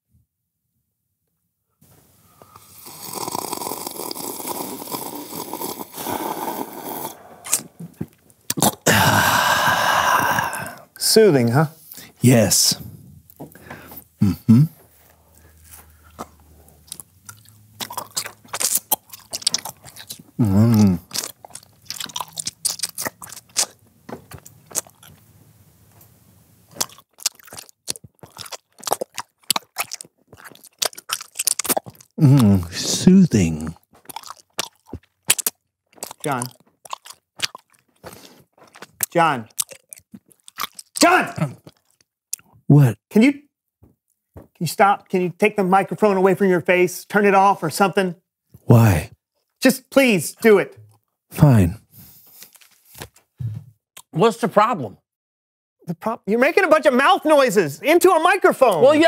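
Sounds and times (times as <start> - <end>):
man sipping and slurping water: 2.2 - 11.0, 13.0 - 25.2, 26.7 - 42.6
mouth smacks: 2.4 - 10.9, 13.2 - 25.2, 26.7 - 42.6
mouth clicks into microphone: 7.4 - 8.9.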